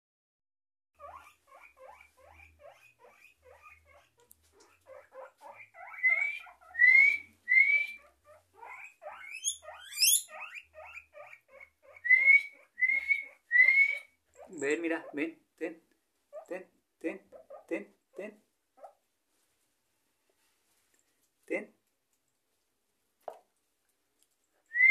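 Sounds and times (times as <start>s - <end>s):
guinea pigs wheeking: 1.0s - 15.4s, 16.3s - 19.0s.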